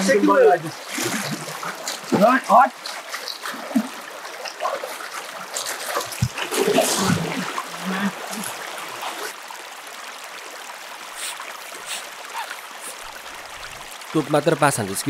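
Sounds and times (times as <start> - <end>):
voices: 0.0 - 1.4
river water running over stones: 0.0 - 15.0
water splashes: 0.0 - 15.0.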